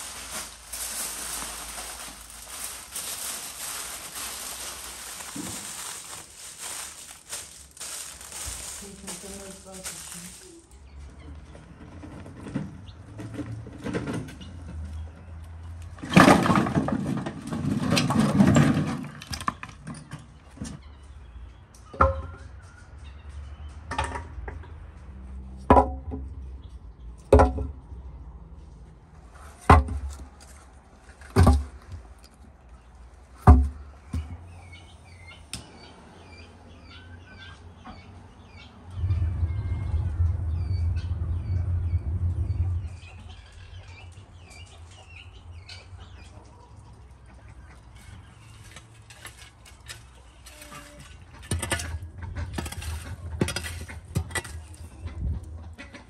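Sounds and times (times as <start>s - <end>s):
wood clattering: 0.0s - 10.7s
small birds chirping: 0.0s - 11.6s, 32.6s - 48.6s.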